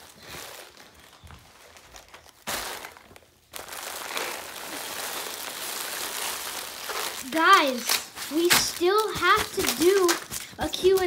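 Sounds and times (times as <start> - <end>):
candy wrappers crinkling and clattering: 0.0 - 11.0.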